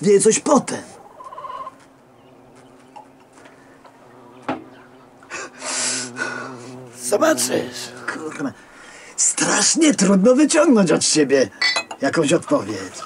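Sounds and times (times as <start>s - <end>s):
man exhaling harshly: 5.3s - 6.8s.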